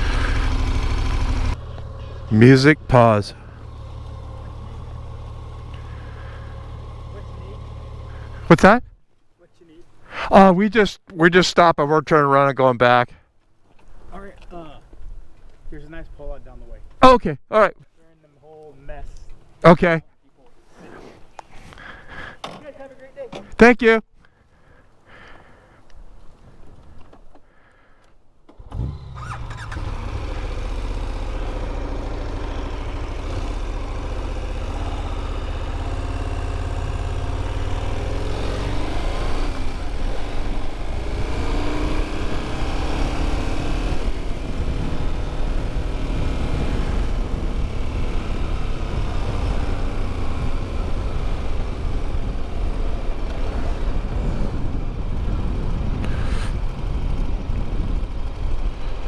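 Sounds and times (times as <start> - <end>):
motorcycle engine revving: 0.0 - 8.6, 28.5 - 59.0.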